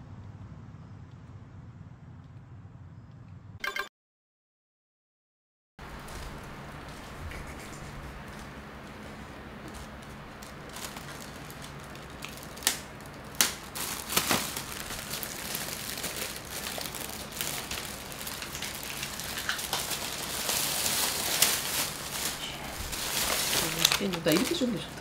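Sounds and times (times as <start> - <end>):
plastic bag rustling: 7.8 - 25.0.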